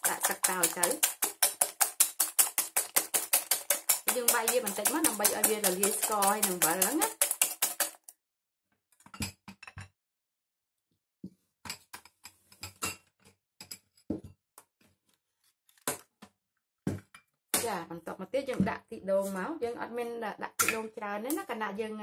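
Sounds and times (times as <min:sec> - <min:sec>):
tableware and packets clicking: 0:00.0 - 0:08.1
wire whisk beating eggs in bowl: 0:00.0 - 0:08.1.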